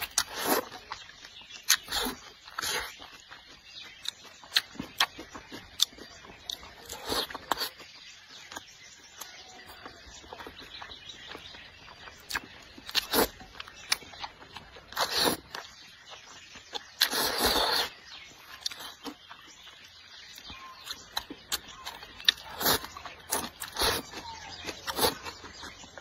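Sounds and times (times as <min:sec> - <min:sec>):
chewing and mouth noises: 0:00.0 - 0:26.0
slurping noodles: 0:00.1 - 0:00.8, 0:12.3 - 0:13.7, 0:14.9 - 0:15.8, 0:17.0 - 0:19.2, 0:22.2 - 0:25.8.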